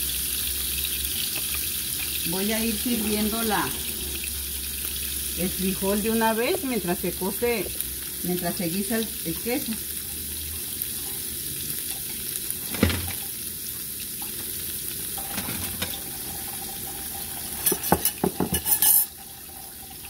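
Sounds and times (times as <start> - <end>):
cheese sizzling in oil: 0.0 - 20.0
kitchen utensils clattering: 2.6 - 4.3, 12.6 - 13.3, 15.2 - 16.7, 17.3 - 19.4.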